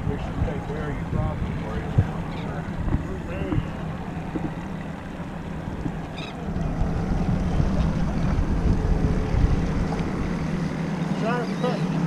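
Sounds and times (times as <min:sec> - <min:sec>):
steady low hum: 0:00.0 - 0:12.0
wind buffeting microphone: 0:00.0 - 0:12.0.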